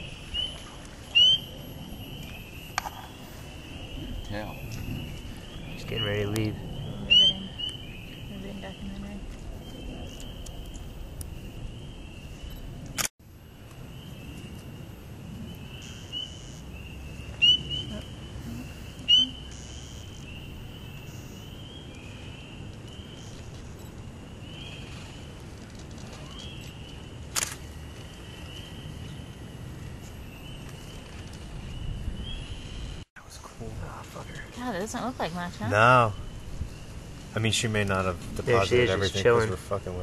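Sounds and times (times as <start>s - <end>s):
chorus of frogs calling: 0.0s - 8.8s, 15.6s - 22.5s
sharp clicks: 25.6s - 27.6s.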